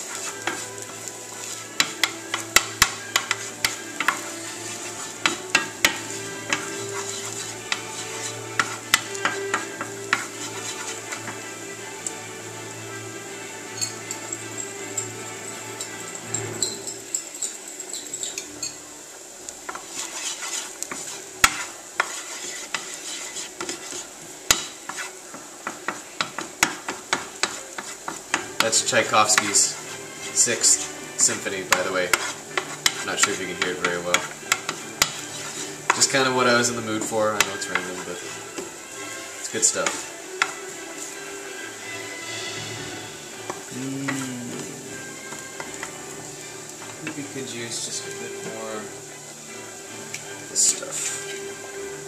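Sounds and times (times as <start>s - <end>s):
wooden spoon tapping a pan: 0.0s - 12.2s, 19.6s - 41.2s, 43.4s - 48.6s
light sizzle: 0.0s - 52.0s
spoon knocking against pan: 1.8s - 4.3s, 5.2s - 10.5s, 23.6s - 29.6s, 31.7s - 36.1s.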